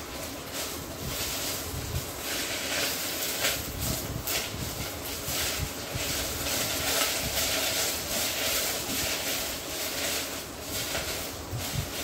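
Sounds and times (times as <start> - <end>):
leaves sizzling in oil: 0.0 - 12.0.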